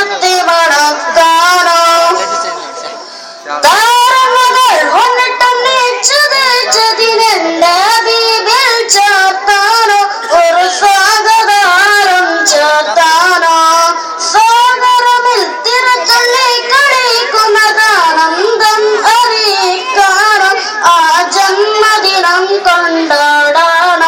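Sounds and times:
child singing solo: 0:03.7 - 0:24.0.

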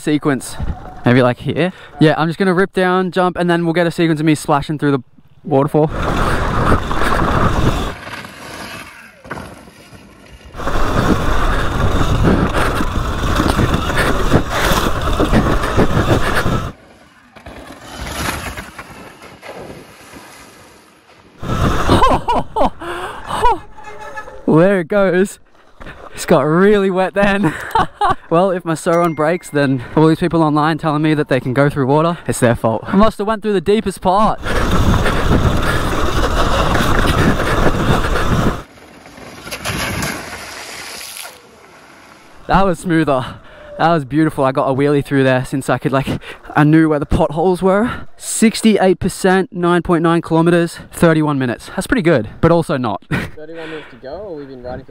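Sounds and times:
distant bike crossing water: 0:05.8 - 0:22.4, 0:34.4 - 0:42.5
wind rush: 0:05.9 - 0:08.0, 0:34.4 - 0:38.7
tyre noise over rock: 0:05.9 - 0:16.8, 0:34.4 - 0:41.3
wind buffeting microphone: 0:10.5 - 0:16.8, 0:34.4 - 0:38.7
bike splashing through water: 0:38.7 - 0:42.2.

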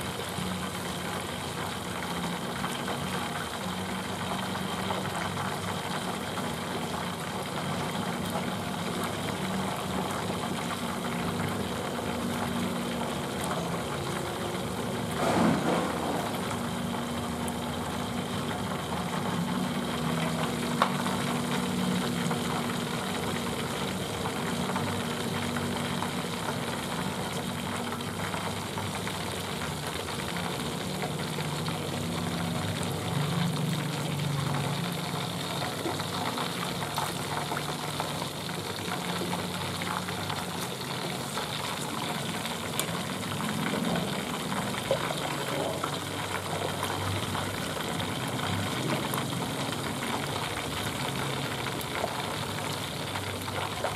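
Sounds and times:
oil sizzling and crackling: 0:00.0 - 0:53.9.

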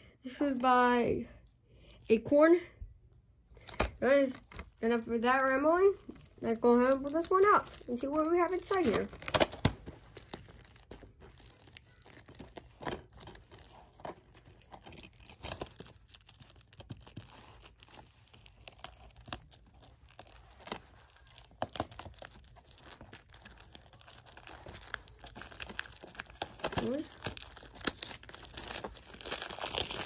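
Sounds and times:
plastic case crinkling and clicking: 0:03.6 - 0:18.0.

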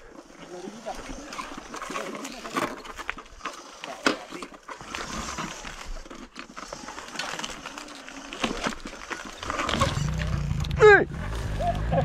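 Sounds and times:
clicks and knocks from bike: 0:01.2 - 0:10.8
dirt bike engine drone: 0:06.8 - 0:12.0.

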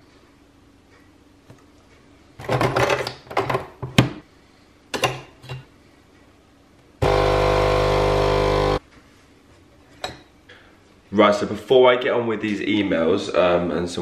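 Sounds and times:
coffee machine pump buzzing: 0:07.0 - 0:08.8.

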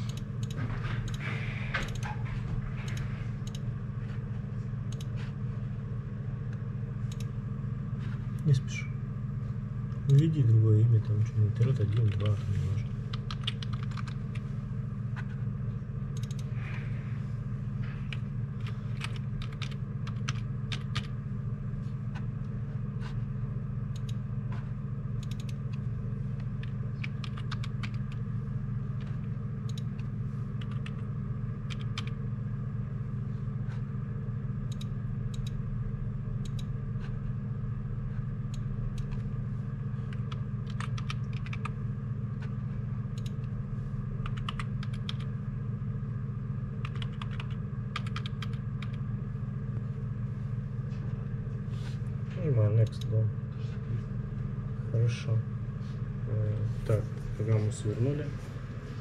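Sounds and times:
low machine hum: 0:00.0 - 0:59.0
keyboard keys clicking: 0:00.1 - 0:01.2, 0:13.1 - 0:14.4, 0:16.1 - 0:16.5, 0:18.1 - 0:21.2, 0:26.4 - 0:28.2, 0:29.0 - 0:31.0, 0:31.7 - 0:32.2, 0:40.1 - 0:41.8, 0:44.2 - 0:45.3, 0:46.8 - 0:49.0.

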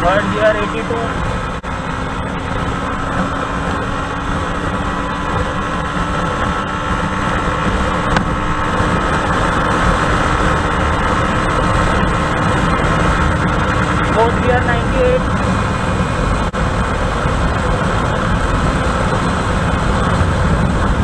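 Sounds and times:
motorcycle engine accelerating: 0:00.0 - 0:21.0
wind rush on microphone: 0:00.0 - 0:21.0.

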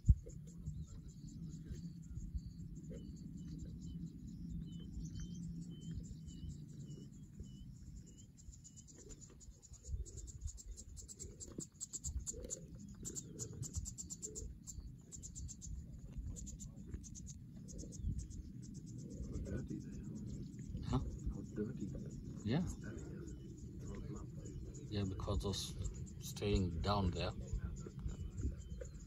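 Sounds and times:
insect ticking chirr: 0:00.0 - 0:29.0
low rumble: 0:15.6 - 0:29.0.

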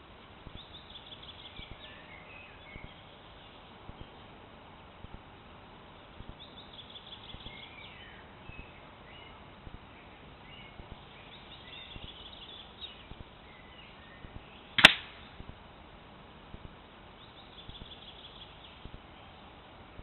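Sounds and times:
birds singing faintly: 0:00.0 - 0:20.0
air rifle shot crack: 0:14.8 - 0:15.3.

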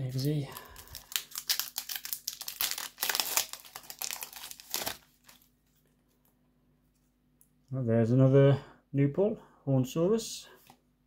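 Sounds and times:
foil wrapper tearing and crinkling: 0:00.0 - 0:05.5.

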